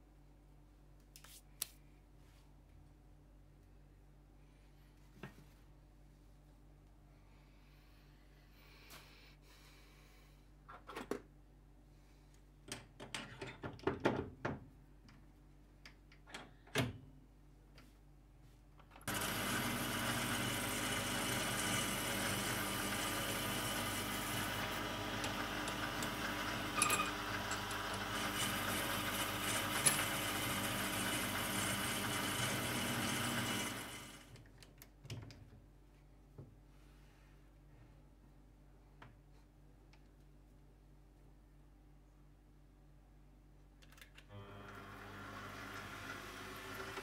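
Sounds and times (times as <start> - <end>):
lathe motor running: 19.1 - 34.2.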